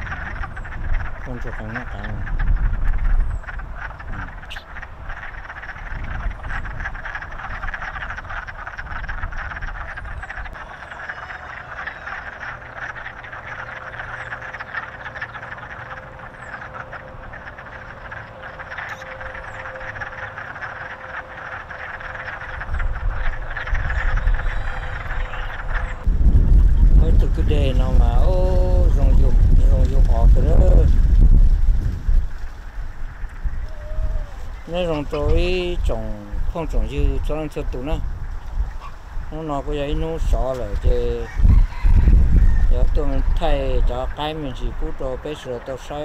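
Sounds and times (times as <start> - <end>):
frogs calling: 0.0 - 46.0
high chirps: 10.0 - 26.1
low rumble: 12.6 - 39.4.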